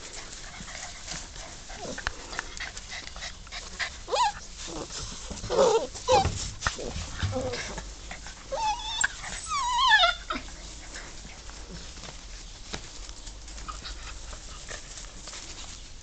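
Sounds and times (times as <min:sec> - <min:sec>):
faint scuffling: 0:00.0 - 0:16.0
puppy whining: 0:02.7 - 0:11.9.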